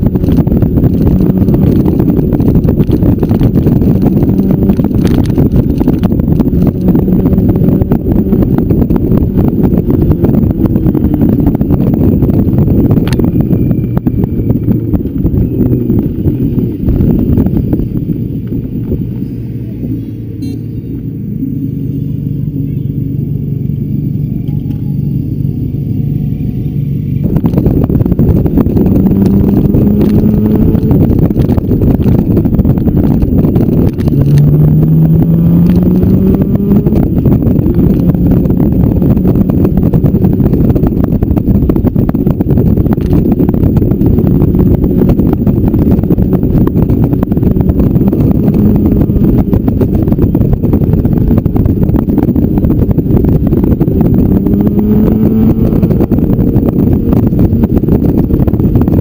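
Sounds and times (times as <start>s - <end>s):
motorcycle engine accelerating: 0.0s - 59.0s
wind rush on microphone: 0.0s - 59.0s.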